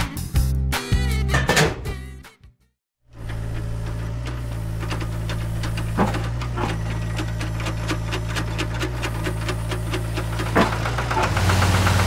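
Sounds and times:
tractor engine running: 3.1 - 12.0.

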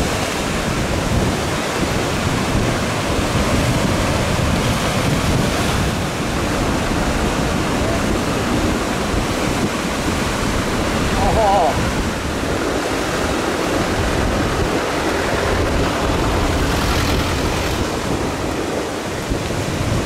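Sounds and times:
ocean waves breaking: 0.0 - 20.0
wind on microphone: 0.0 - 20.0.

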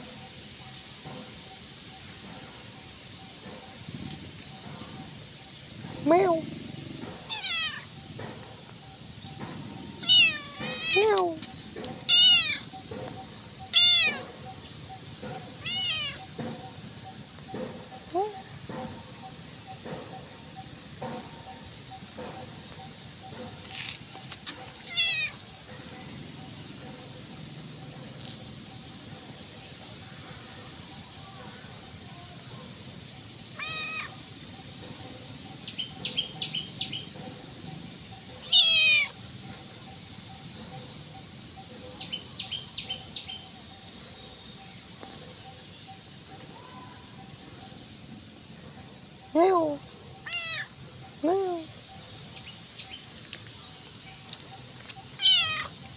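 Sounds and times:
small bird chirping: 3.2 - 29.8, 49.0 - 55.9
cat meowing: 7.3 - 7.9, 10.0 - 11.4, 12.1 - 12.7, 13.8 - 14.3, 15.6 - 16.3, 24.9 - 25.4, 33.6 - 34.1, 38.4 - 39.1, 50.2 - 50.7, 55.2 - 55.8.

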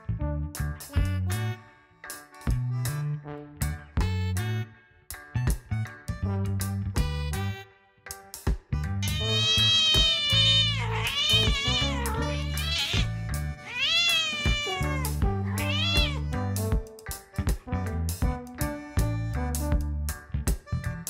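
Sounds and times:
background music with steady beat: 0.0 - 21.0
cat meowing: 9.0 - 16.2.

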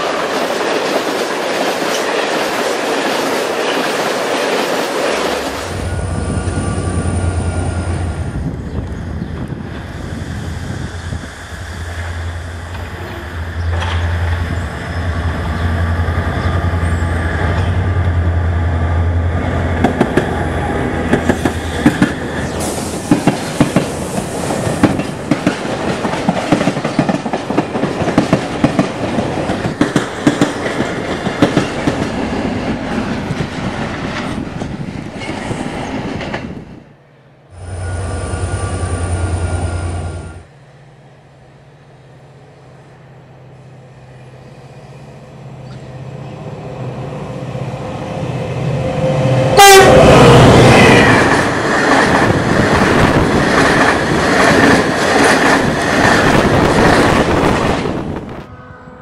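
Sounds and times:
locomotive engine drone: 5.2 - 23.0, 37.4 - 53.4, 57.4 - 59.0.

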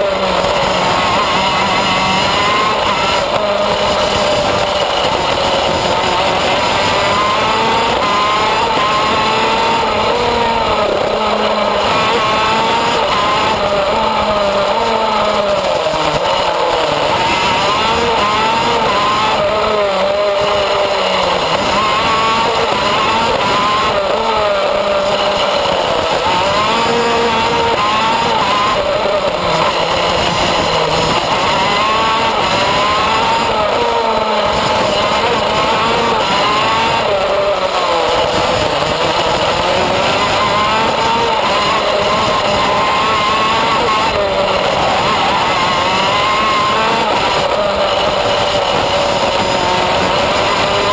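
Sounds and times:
kart engine revving: 0.0 - 50.9.

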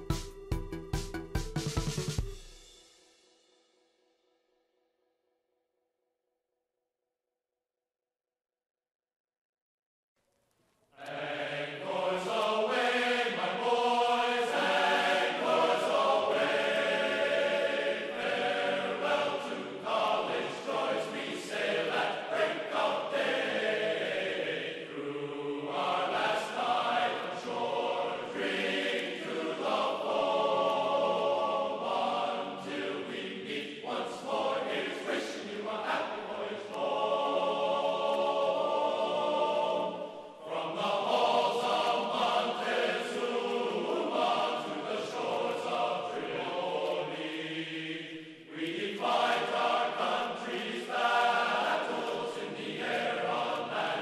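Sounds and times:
choir chanting held chords: 11.0 - 54.0.

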